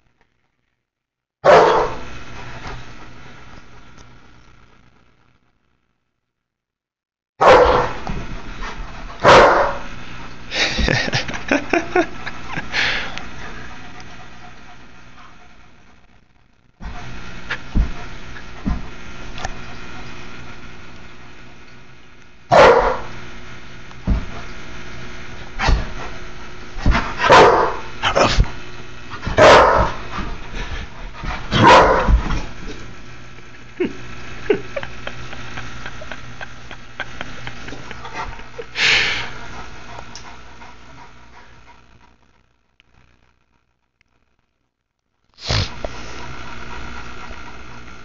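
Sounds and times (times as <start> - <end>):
dog barking: 1.4 - 2.0, 7.4 - 8.0, 9.2 - 9.8, 22.5 - 23.1, 27.2 - 28.3, 29.4 - 30.0, 31.6 - 32.2.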